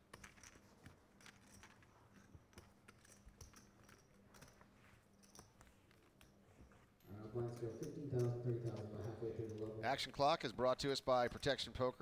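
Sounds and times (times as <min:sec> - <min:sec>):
poker chips clicking: 0:00.0 - 0:04.6.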